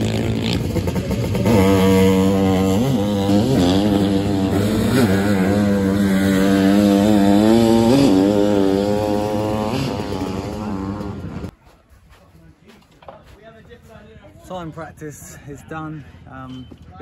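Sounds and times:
motocross engine revving: 0:00.0 - 0:11.5.

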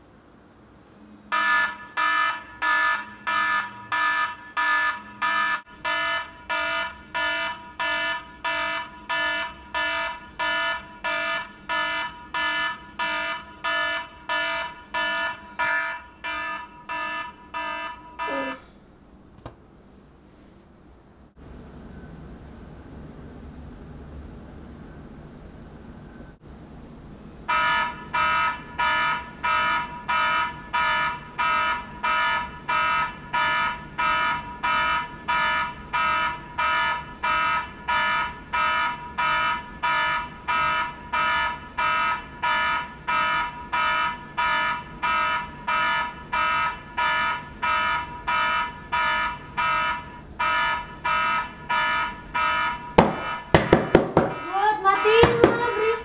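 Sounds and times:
electronic alarm beeping: 0:01.3 - 0:18.6, 0:27.5 - 0:56.0.

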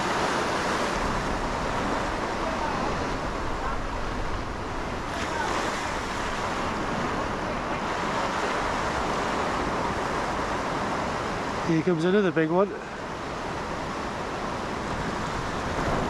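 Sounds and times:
surf breaking on rocks: 0:00.0 - 0:12.6.

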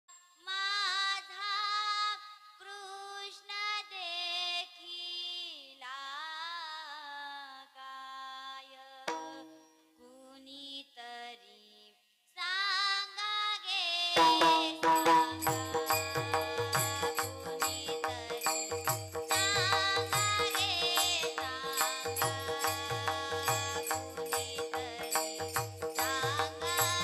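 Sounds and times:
girl singing slow melody: 0:00.2 - 0:27.0
drum stroke: 0:09.1 - 0:09.7, 0:14.2 - 0:17.0
harmonium: 0:14.6 - 0:27.0.

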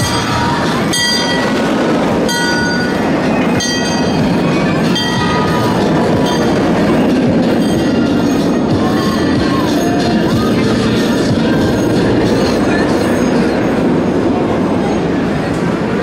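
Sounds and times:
wheel squeals: 0:00.0 - 0:13.8
train cars rumbling over rails: 0:00.0 - 0:16.0.

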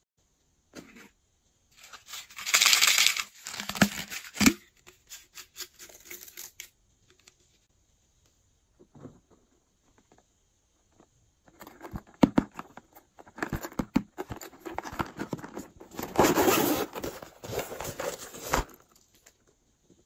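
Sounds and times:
plastic pouch crinkling: 0:01.8 - 0:04.6.

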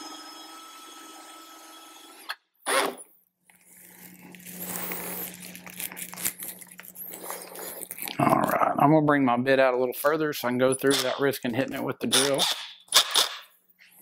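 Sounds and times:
cordless drill boring: 0:00.0 - 0:03.0.

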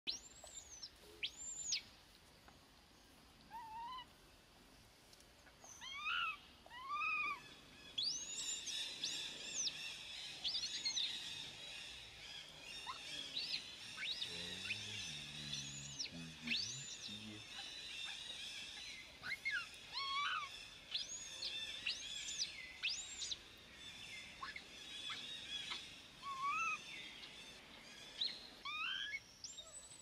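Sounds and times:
baby monkey crying: 0:05.8 - 0:07.4, 0:19.2 - 0:20.5, 0:26.2 - 0:26.8, 0:28.6 - 0:29.2.

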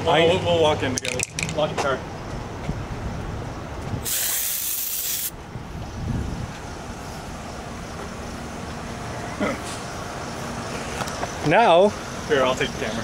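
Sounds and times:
outdoor background noise: 0:00.0 - 0:13.0
loud hiss: 0:04.0 - 0:05.4.

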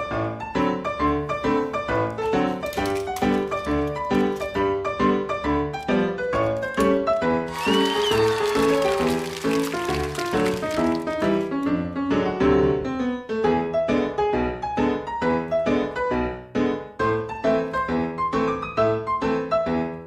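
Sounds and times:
keyboard music: 0:01.5 - 0:13.0.

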